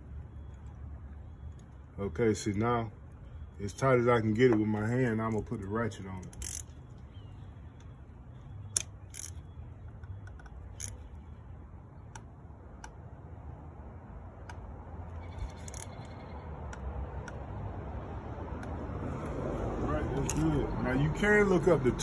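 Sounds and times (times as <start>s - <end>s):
socket ratchet clicking: 6.2s - 7.0s, 8.7s - 11.1s, 15.4s - 16.1s.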